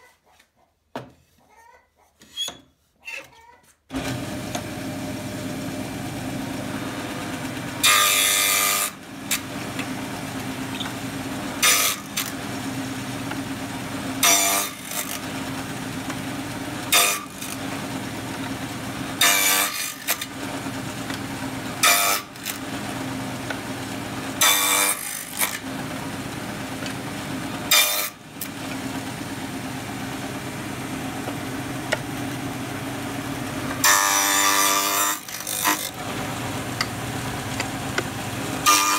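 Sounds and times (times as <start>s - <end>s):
table saw humming: 3.9s - 38.9s
saw blade cutting wood: 6.8s - 12.6s, 14.2s - 21.2s, 21.8s - 23.7s, 24.3s - 25.8s, 27.7s - 28.6s, 33.7s - 36.2s, 36.8s - 38.9s.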